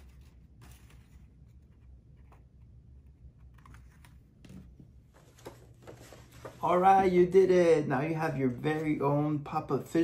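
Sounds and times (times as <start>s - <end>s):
paper card rustling and clicking: 0.0s - 6.6s.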